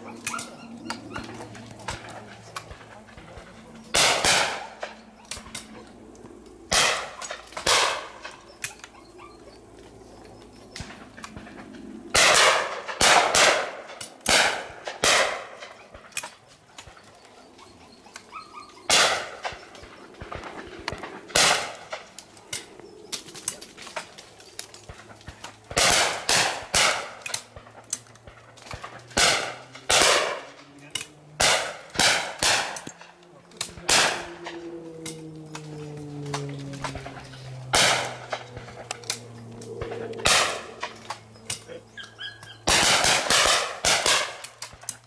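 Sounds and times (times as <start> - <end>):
shotgun shots: 3.9 - 5.5, 6.7 - 8.3, 12.1 - 15.8, 18.9 - 19.6, 20.2 - 22.1, 25.7 - 33.1, 33.7 - 34.6, 37.7 - 38.8, 39.8 - 41.0, 42.6 - 44.8
low droning tone: 27.1 - 42.7.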